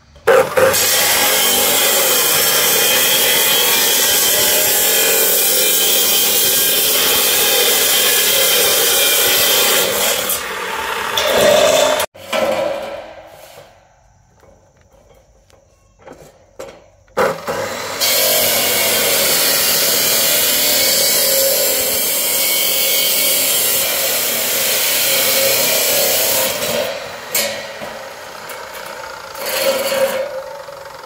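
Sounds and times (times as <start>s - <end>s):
power saw cutting: 0.3s - 12.1s, 17.2s - 31.0s.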